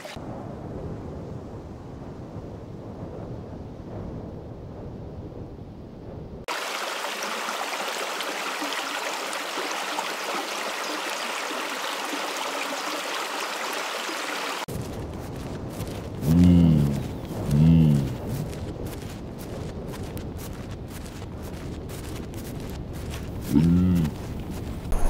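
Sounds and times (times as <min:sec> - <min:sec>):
low rumble: 0:00.2 - 0:06.5, 0:14.7 - 0:25.0.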